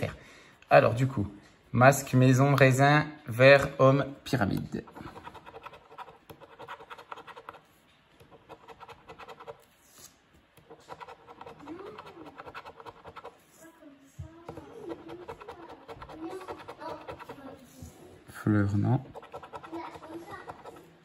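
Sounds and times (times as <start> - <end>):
coin scratching lottery ticket: 4.8 - 13.4, 14.6 - 17.5, 19.0 - 20.9.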